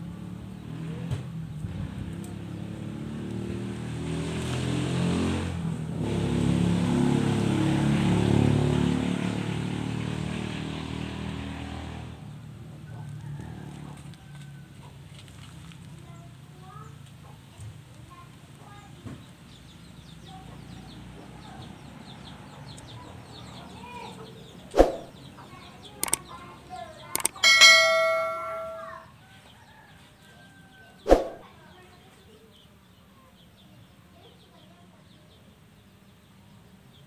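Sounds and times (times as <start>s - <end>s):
faint background noise: 12.2s - 37.0s
mouse clicks: 26.0s - 26.2s, 27.2s - 27.4s
bright bell ding: 27.2s - 29.0s.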